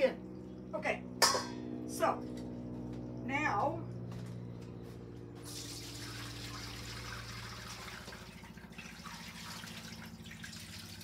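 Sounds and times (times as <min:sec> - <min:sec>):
broth pouring and splashing: 0:05.4 - 0:11.0.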